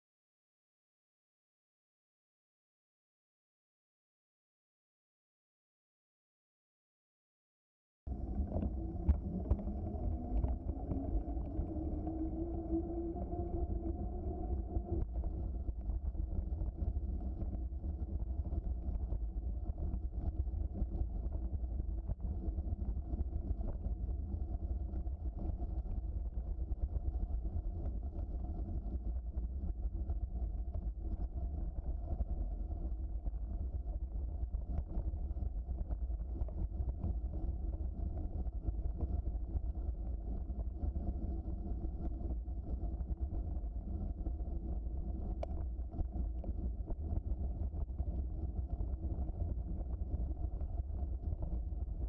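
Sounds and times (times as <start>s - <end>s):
rising hum: 8.1s - 15.6s
wind on microphone: 8.1s - 52.0s.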